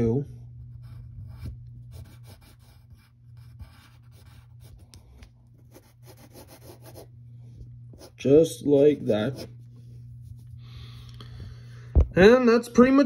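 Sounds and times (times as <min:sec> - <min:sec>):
steady low hum: 0:00.0 - 0:13.0
pencil scratching on paper: 0:00.7 - 0:04.9, 0:05.6 - 0:07.1, 0:09.0 - 0:09.6.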